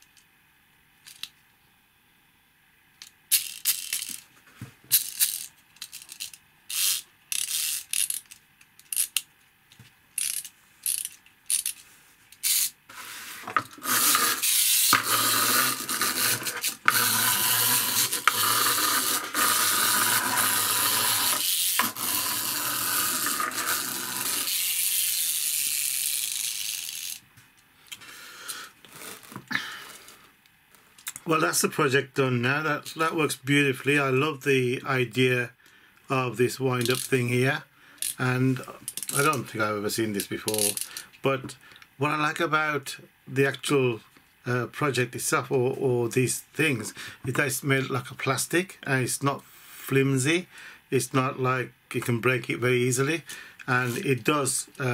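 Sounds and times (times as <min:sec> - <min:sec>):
toy gears whirring: 0:03.3 - 0:04.2, 0:04.9 - 0:09.2, 0:10.2 - 0:27.2, 0:36.8 - 0:37.2, 0:40.5 - 0:41.0
wind-up spring ratcheting: 0:03.3 - 0:04.2, 0:04.9 - 0:09.2, 0:10.2 - 0:11.8, 0:12.4 - 0:12.8, 0:13.7 - 0:27.2, 0:36.8 - 0:37.2, 0:40.5 - 0:41.0.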